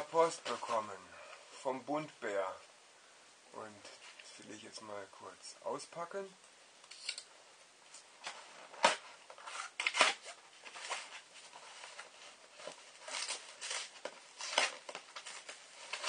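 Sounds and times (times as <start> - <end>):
cardboard and paper rustling: 0.0 - 0.9, 8.2 - 16.0.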